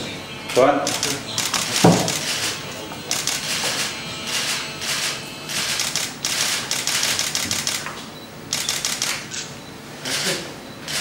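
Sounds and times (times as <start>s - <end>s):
camera shutters clicking in bursts: 0.8s - 10.2s.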